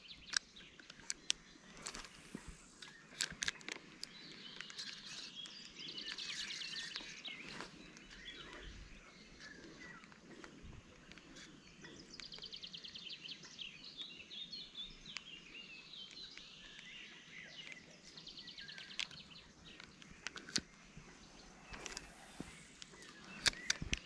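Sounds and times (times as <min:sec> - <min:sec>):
birds chirping: 0:00.0 - 0:24.0
fishing reel clicks: 0:21.7 - 0:24.0.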